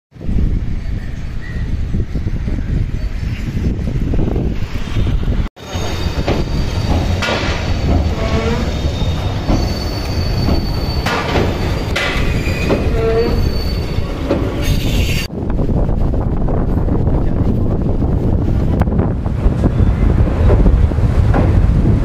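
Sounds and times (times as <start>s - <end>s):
train wheels rumbling on rails: 0.2s - 22.0s
wheel squeals: 5.6s - 15.3s.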